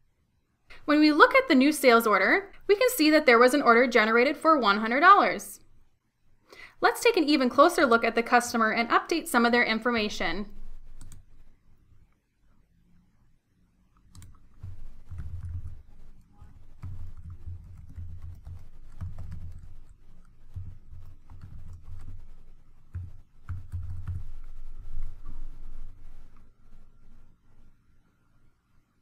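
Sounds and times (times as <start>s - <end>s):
keyboard typing: 10.7s - 11.5s, 13.9s - 26.5s.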